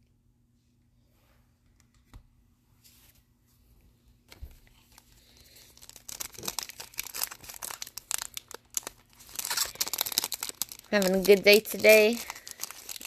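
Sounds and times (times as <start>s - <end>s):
foil pack crinkling: 4.8s - 13.0s.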